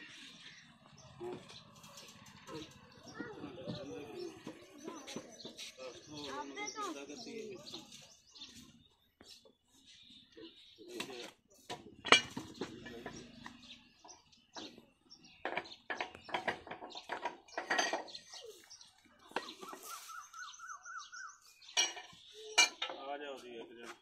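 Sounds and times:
hand tools clinking on metal: 15.4s - 18.5s, 21.8s - 23.1s.

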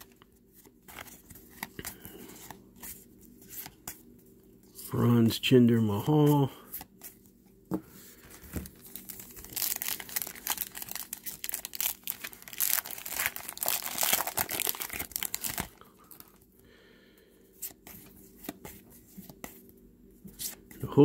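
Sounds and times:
foil pack crinkling and tearing: 8.6s - 16.4s.

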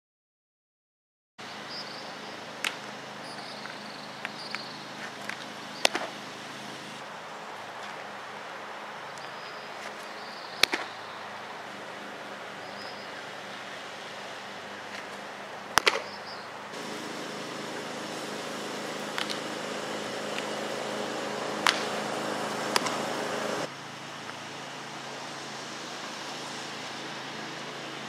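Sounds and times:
machine hum: 5.5s - 7.0s, 16.7s - 23.7s.

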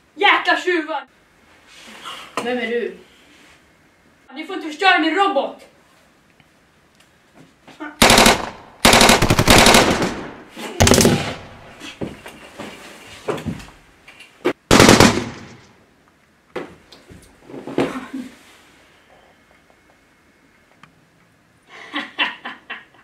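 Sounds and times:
machine-gun fire: 8.0s - 11.8s, 14.7s - 15.8s.

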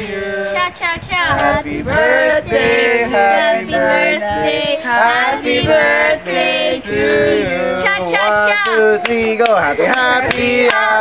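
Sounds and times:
group singing loudly: 0.0s - 11.0s.

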